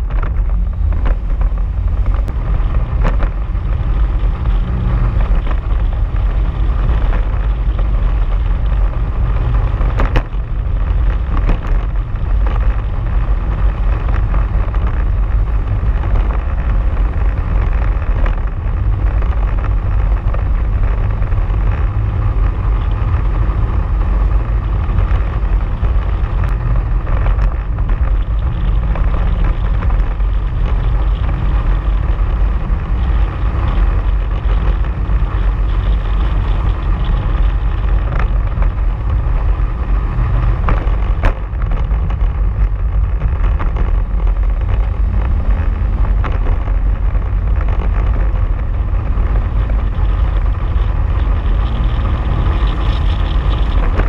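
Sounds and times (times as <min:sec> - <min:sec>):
vehicle engine running: 0:00.0 - 0:54.0
sharp knocks from rough track: 0:40.2 - 0:42.4.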